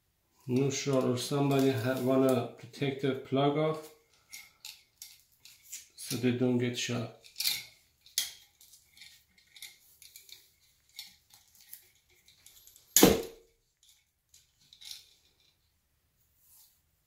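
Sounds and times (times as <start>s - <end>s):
sharp knock with ring: 13.0s - 13.4s.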